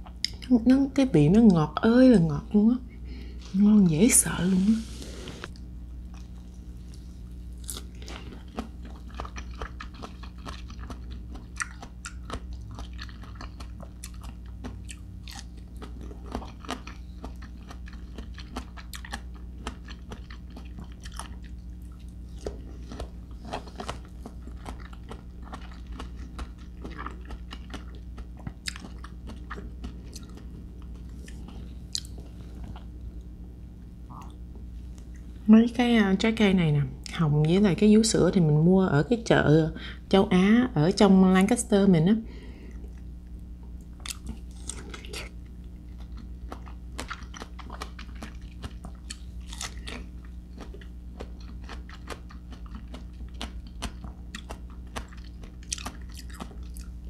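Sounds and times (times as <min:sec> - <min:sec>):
chewing crisp fruit: 0:05.4 - 0:33.4, 0:42.6 - 0:57.0.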